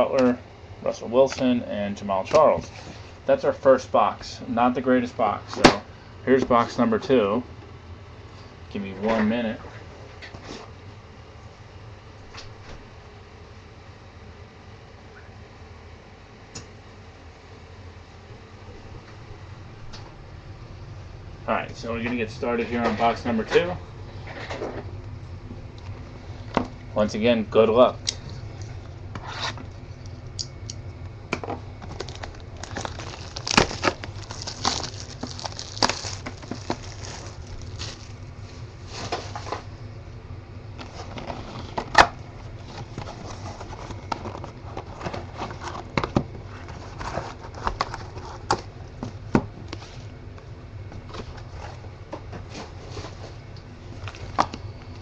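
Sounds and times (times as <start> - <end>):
cardboard and plastic rustling: 31.4 - 39.8, 40.8 - 50.0, 50.8 - 54.6.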